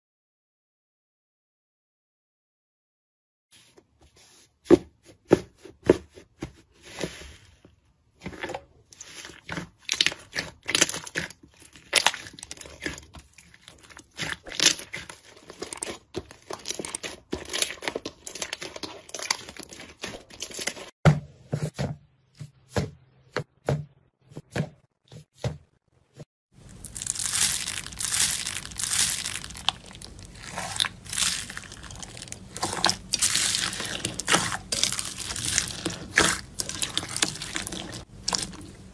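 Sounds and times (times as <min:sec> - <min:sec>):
slime with foam beads crunching: 0:09.0 - 0:20.9, 0:26.6 - 0:38.9
slime crackling and popping: 0:09.9 - 0:20.7, 0:26.7 - 0:38.7.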